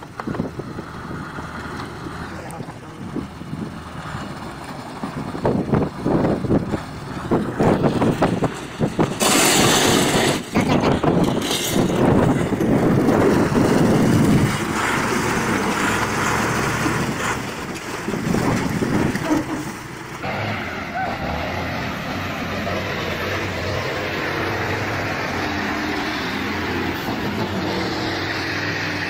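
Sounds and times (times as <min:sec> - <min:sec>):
truck diesel engine under load: 0:00.0 - 0:29.0
loud rushing noise: 0:05.4 - 0:17.5, 0:20.2 - 0:29.0.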